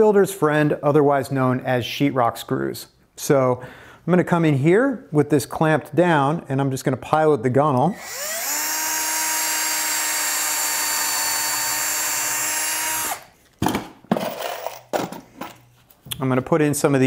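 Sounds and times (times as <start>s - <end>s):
power drill boring wood: 8.0s - 13.3s.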